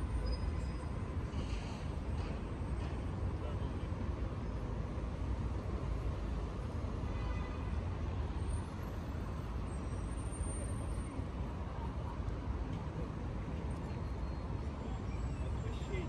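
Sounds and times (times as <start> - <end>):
city road traffic rumble: 0.0 - 16.0.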